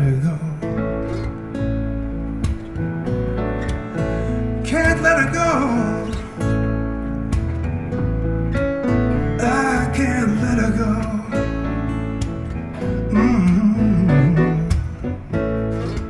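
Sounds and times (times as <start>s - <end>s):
man singing wordlessly: 0.0s - 1.0s, 4.6s - 6.5s, 9.4s - 11.9s, 13.0s - 15.2s
acoustic guitar: 0.0s - 16.0s
grand piano: 0.0s - 16.0s
upright bass: 0.0s - 16.0s.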